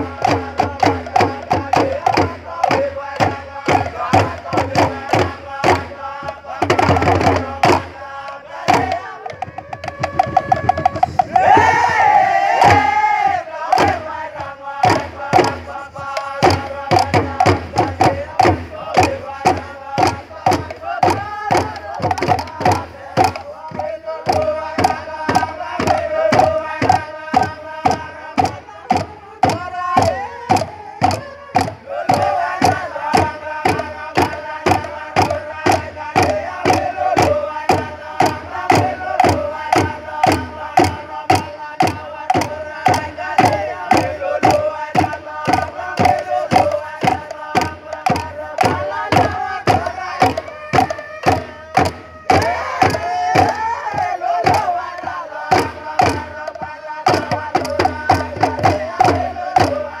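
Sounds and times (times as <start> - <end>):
fast drumbeat: 0.0 - 60.0
group chanting long notes: 0.0 - 60.0.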